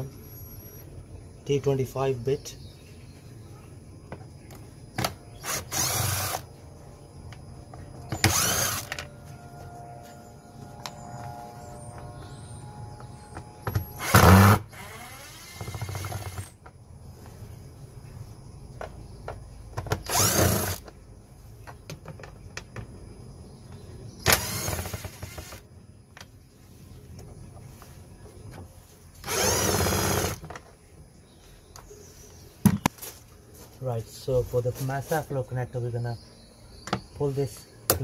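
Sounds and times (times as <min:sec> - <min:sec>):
cordless drill whirring: 0:05.4 - 0:06.4, 0:08.1 - 0:09.1, 0:13.9 - 0:16.5, 0:20.1 - 0:20.8, 0:24.2 - 0:25.6, 0:29.2 - 0:30.4.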